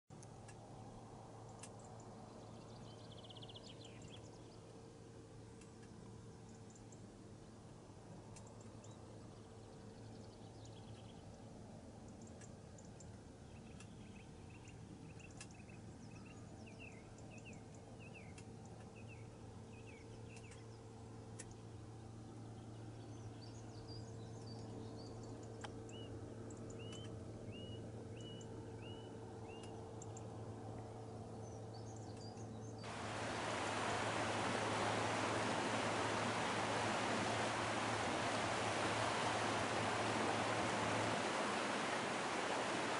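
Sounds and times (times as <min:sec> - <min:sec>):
faint low hum: 0:00.1 - 0:42.9
small birds chirping: 0:31.6 - 0:42.9
water trickling down rock: 0:32.9 - 0:42.9.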